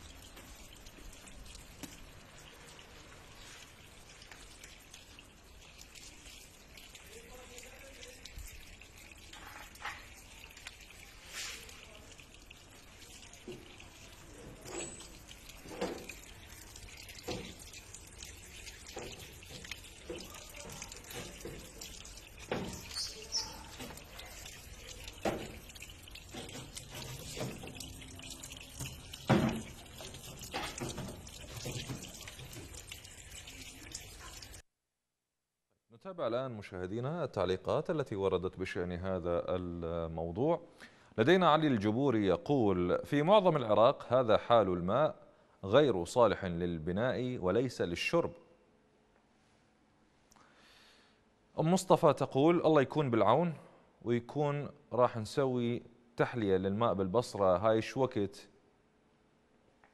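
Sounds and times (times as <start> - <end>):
water drips: 0.0 - 34.6
water splashing into a tank: 0.0 - 34.6.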